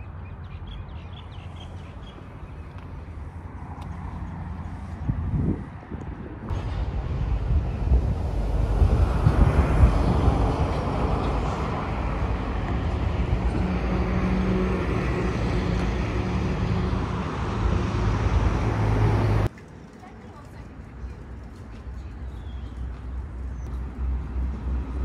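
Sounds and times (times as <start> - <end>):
passing engine hum: 0.0 - 19.6
road traffic rushing: 0.0 - 25.0.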